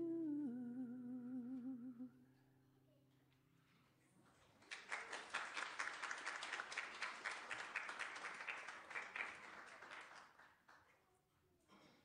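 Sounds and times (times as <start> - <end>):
crowd applauding: 4.4 - 10.9.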